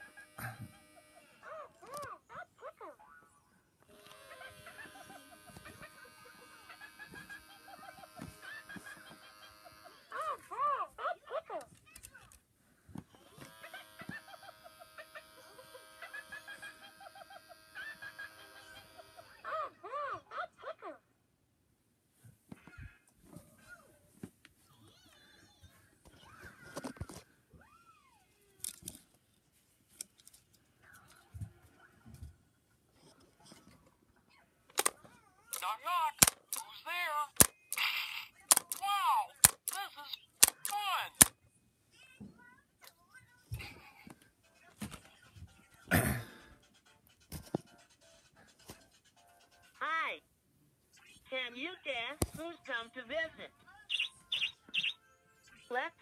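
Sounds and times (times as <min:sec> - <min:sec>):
toy clicking: 0:28.6 - 0:29.0, 0:34.7 - 0:41.3
squeaky toy sounds: 0:35.5 - 0:41.3, 0:53.9 - 0:55.0.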